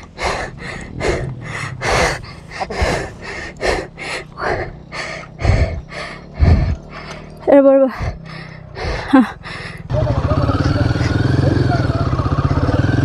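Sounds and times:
faint low hum: 0:00.0 - 0:09.8
person panting heavily: 0:00.0 - 0:09.9.

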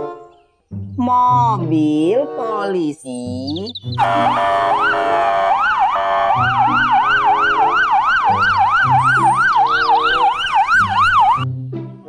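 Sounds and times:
background music: 0:00.0 - 0:12.0
police siren yelping: 0:03.7 - 0:11.5
second siren wailing: 0:03.9 - 0:11.5.

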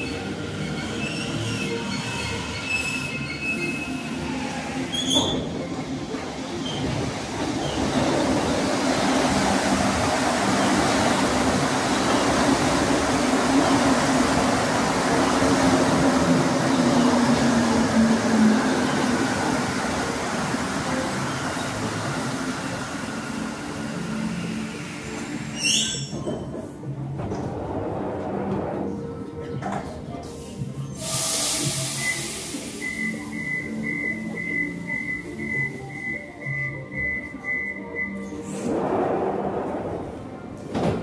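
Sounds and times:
train squealing tones: 0:00.0 - 0:05.7, 0:21.2 - 0:26.7, 0:30.8 - 0:38.7
train rumble: 0:00.0 - 0:41.0.

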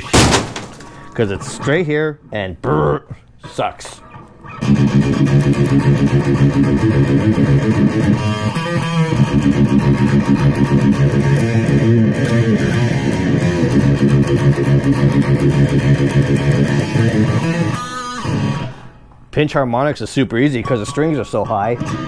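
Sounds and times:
electric guitar picked notes: 0:04.1 - 0:18.7.

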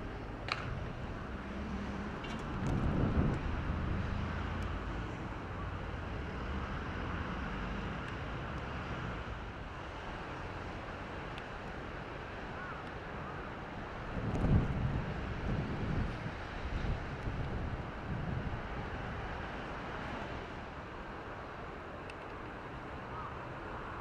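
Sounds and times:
wind buffeting microphone: 0:00.0 - 0:06.2, 0:13.8 - 0:20.5.

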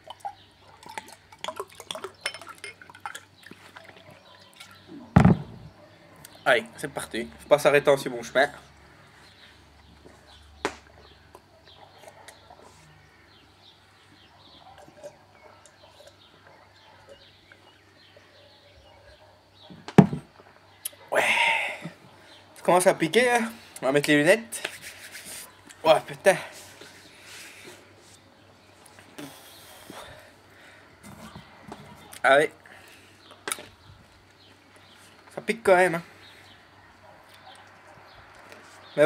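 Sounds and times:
faint birds chirping: 0:00.0 - 0:39.0
glassy clinks: 0:02.2 - 0:02.9.

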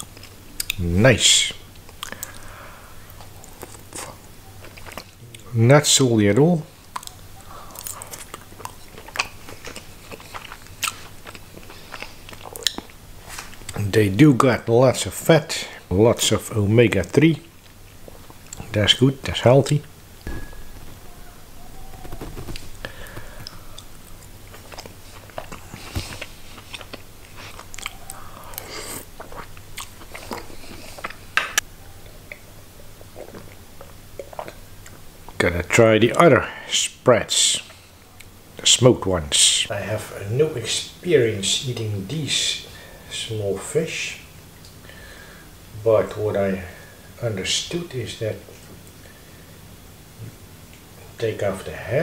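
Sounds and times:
person chewing: 0:01.8 - 0:02.5, 0:03.1 - 0:05.5, 0:06.9 - 0:13.8, 0:19.8 - 0:31.6, 0:33.0 - 0:35.0.

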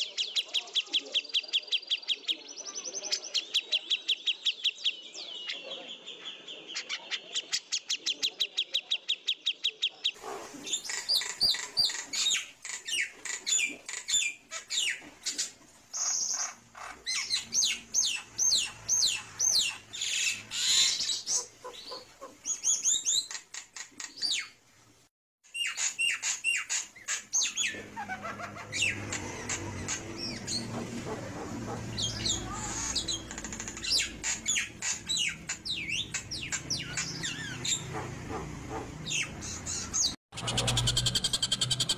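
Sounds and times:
bird repeated chirps: 0:39.0 - 0:41.9
bird song of whistles and trills: 0:39.0 - 0:41.9.

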